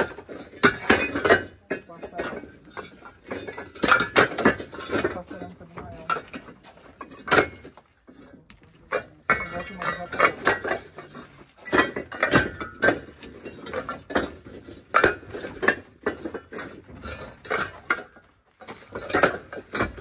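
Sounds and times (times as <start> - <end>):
clay bricks clacking together: 0.0 - 20.0.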